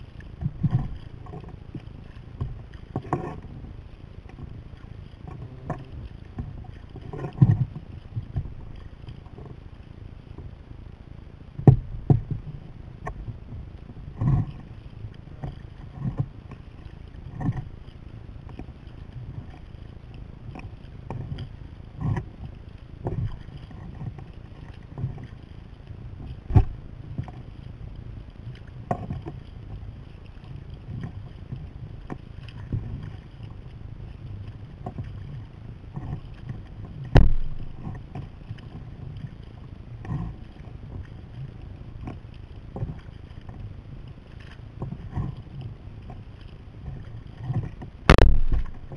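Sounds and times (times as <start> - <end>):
paddle splashes: 0.0 - 10.7, 11.3 - 48.9
water slapping hull: 0.0 - 10.7, 11.4 - 48.9
wind rumble on microphone: 0.0 - 48.9
sharp knocks: 37.1 - 37.8, 48.1 - 48.9.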